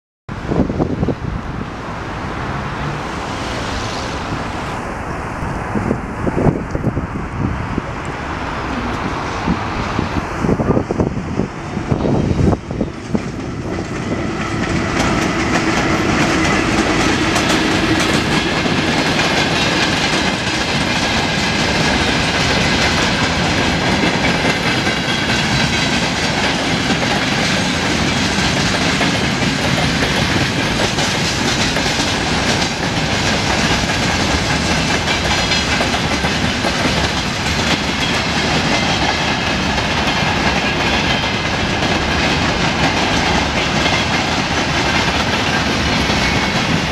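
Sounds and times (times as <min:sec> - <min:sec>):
freight train passing: 0:00.3 - 0:46.9
wheels clacking over rail joints: 0:12.0 - 0:46.9.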